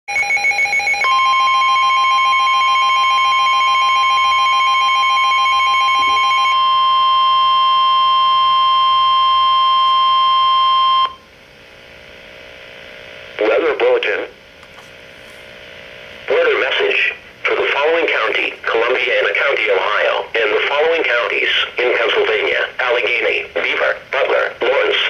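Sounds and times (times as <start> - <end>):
weather radio alarm tone: 0.1 - 11.2.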